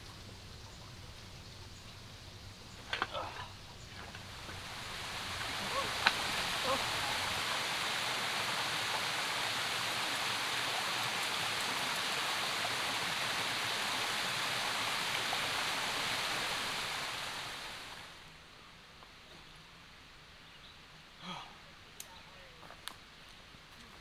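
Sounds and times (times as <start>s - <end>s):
mountain stream rushing: 0.8s - 18.4s.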